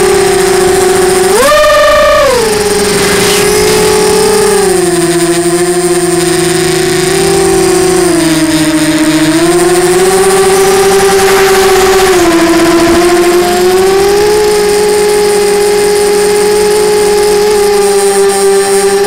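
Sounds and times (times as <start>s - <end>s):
electric motor and propeller whine: 0.0s - 19.0s.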